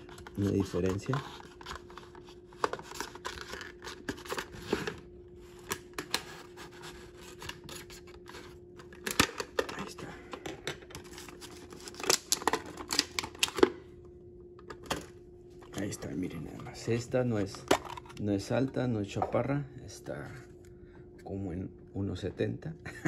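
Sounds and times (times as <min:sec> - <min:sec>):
plastic packaging clicking and crackling: 0:00.0 - 0:05.0, 0:07.3 - 0:10.0, 0:10.8 - 0:13.7.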